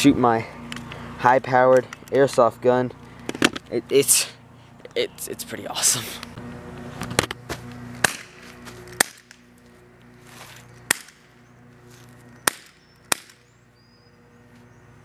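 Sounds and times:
steady low hum: 0:00.0 - 0:15.0
airsoft gun cracks: 0:08.0 - 0:09.4, 0:10.9 - 0:11.3, 0:12.5 - 0:13.4.

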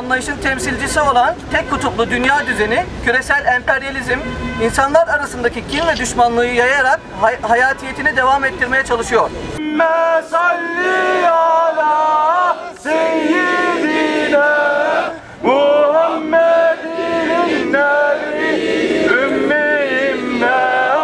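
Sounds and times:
men chanting in unison: 0:09.6 - 0:21.0.

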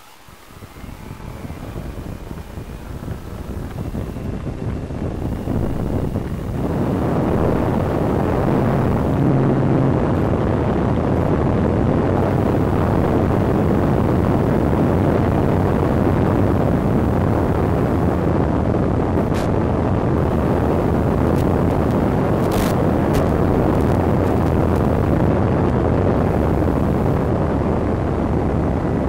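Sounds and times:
electric motor whine: 0:00.0 - 0:29.0
rushing airflow: 0:00.0 - 0:29.0.

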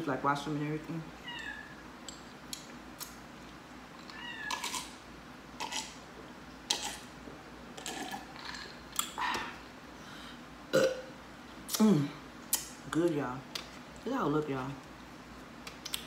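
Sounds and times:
person gulping a drink: 0:07.8 - 0:09.6, 0:10.7 - 0:11.1.

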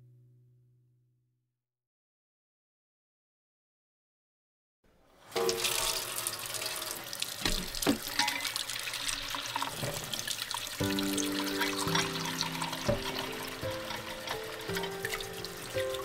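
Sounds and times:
tap water splashing into bowl: 0:05.4 - 0:06.1, 0:07.2 - 0:16.0.

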